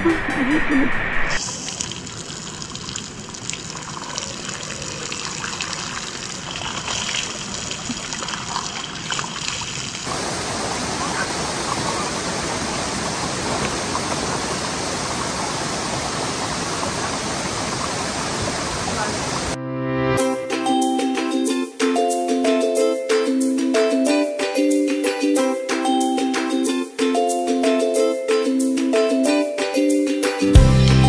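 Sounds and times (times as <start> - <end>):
river flowing: 1.4 - 19.6
thin stream of water splashing: 1.4 - 19.6.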